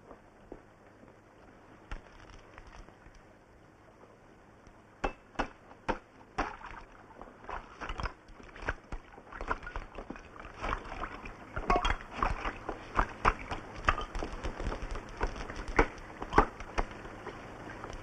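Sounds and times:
water splashing in wooden tub: 6.0 - 17.0.

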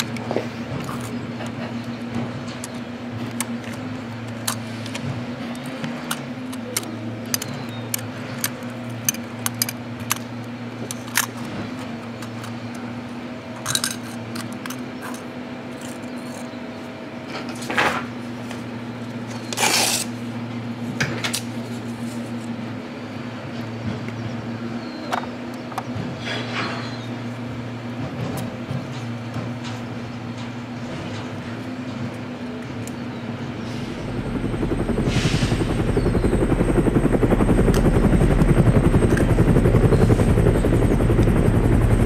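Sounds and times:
steady low hum: 0.0 - 42.0
toy truck clicks and clinks: 13.6 - 16.5.

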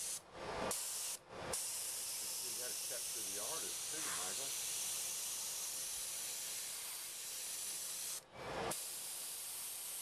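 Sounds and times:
airbrush hissing: 0.0 - 10.0.

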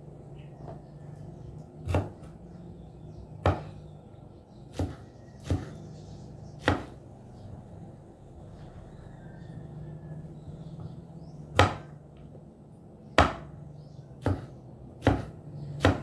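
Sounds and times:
low hum: 0.0 - 13.0
knife chopping on wooden board: 1.8 - 2.4, 3.4 - 3.8, 4.7 - 5.8, 6.6 - 7.0, 11.5 - 12.0, 13.1 - 13.6, 14.2 - 16.0.

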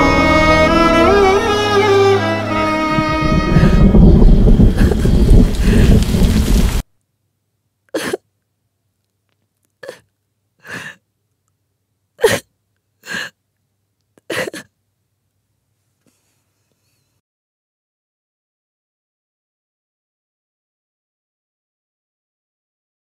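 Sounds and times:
string music: 0.0 - 6.4.

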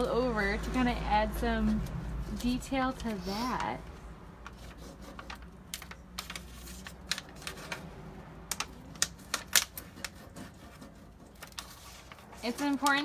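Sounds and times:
backing sheet clicking and crackling: 4.4 - 10.2.

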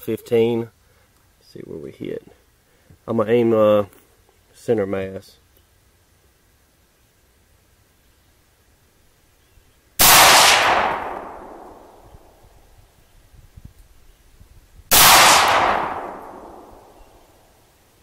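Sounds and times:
rifle shots with echo: 10.0 - 12.4, 14.9 - 17.2.

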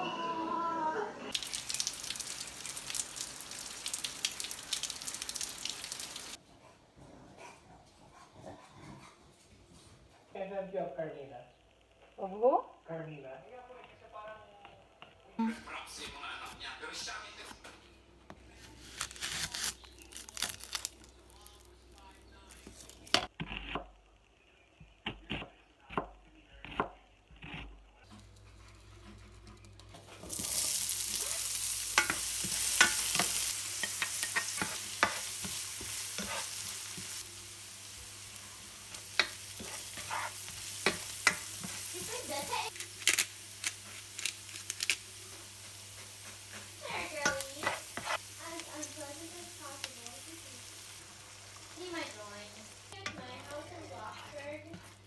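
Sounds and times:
onion sizzling in hot oil: 1.3 - 6.4, 18.8 - 23.4, 29.0 - 55.0
knife cutting onion on board: 25.1 - 27.7
spatula scraping pan: 28.1 - 30.7, 31.9 - 37.2, 38.9 - 42.7, 45.5 - 49.0, 52.9 - 55.0.

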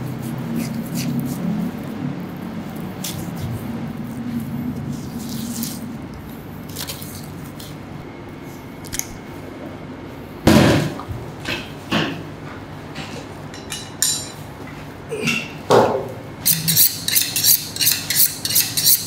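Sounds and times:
knife scrapes and clicks: 16.4 - 19.0.

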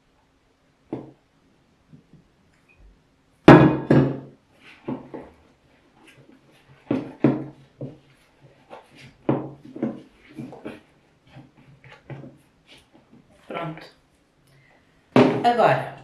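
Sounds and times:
kitchenware knocks: 3.5 - 4.3, 15.2 - 15.6.

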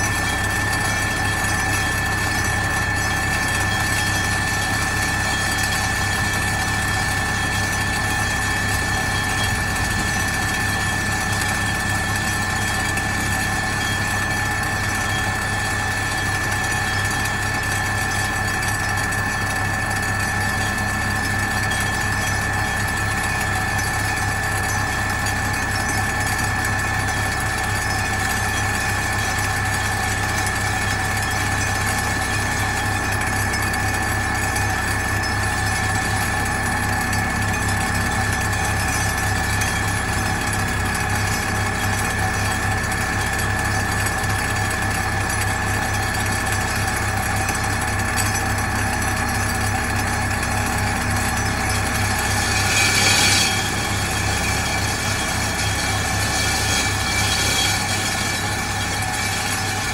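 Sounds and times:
constant high whine: 0.0 - 59.9
diesel engine running: 0.0 - 59.9
vibratory pile hammer drone: 0.0 - 59.9.

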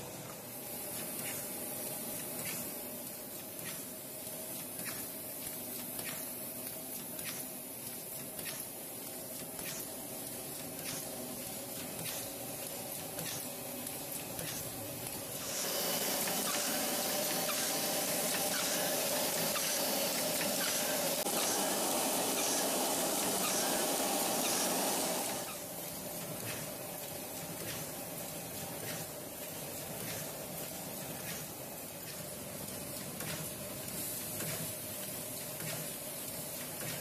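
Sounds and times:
steady hiss: 0.0 - 37.0
machine humming: 13.5 - 26.2.

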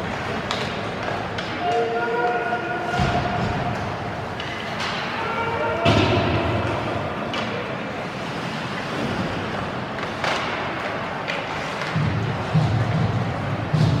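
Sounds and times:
arena noise: 0.0 - 14.0
sharp clacks of hockey sticks: 0.1 - 2.4, 3.0 - 5.2, 9.8 - 14.0
skates scraping on ice: 7.0 - 14.0.

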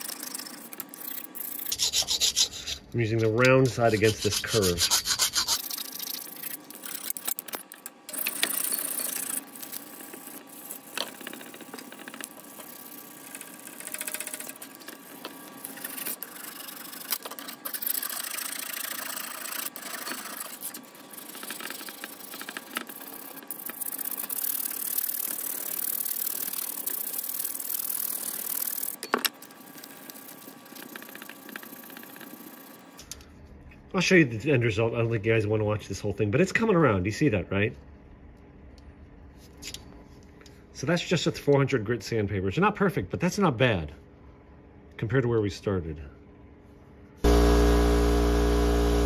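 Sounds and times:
hand file rasping on metal: 1.6 - 2.9, 3.6 - 5.6.

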